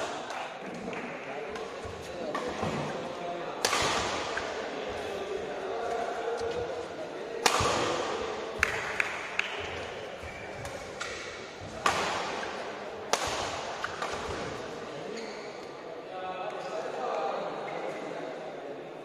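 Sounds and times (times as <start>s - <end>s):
murmur of spectators: 0.0s - 19.0s
rackets hitting shuttlecock: 3.6s - 4.6s, 7.4s - 14.6s
shoes squeaking on court: 15.1s - 15.6s.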